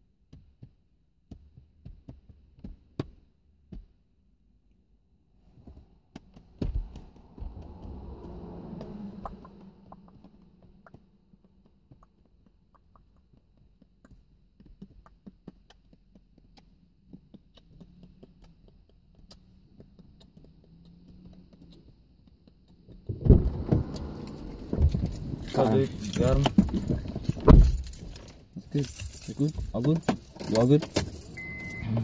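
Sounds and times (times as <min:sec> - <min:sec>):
small clicks and taps: 0:09.2 - 0:23.1.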